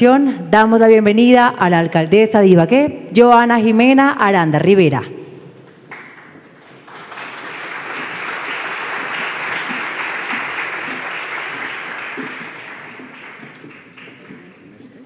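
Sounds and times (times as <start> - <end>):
audience applauding: 5.9 - 14.8.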